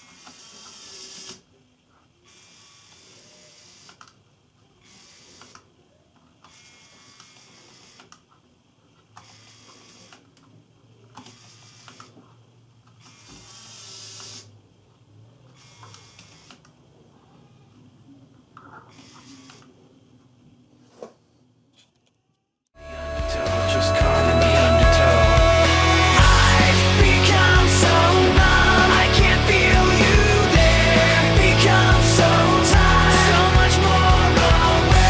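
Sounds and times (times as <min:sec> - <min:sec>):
electric motors whirring: 0:00.0 - 0:01.5, 0:02.3 - 0:04.1, 0:04.8 - 0:05.7, 0:06.4 - 0:08.2, 0:09.2 - 0:10.4, 0:11.2 - 0:12.2, 0:12.9 - 0:14.5, 0:15.4 - 0:16.7, 0:18.8 - 0:19.8.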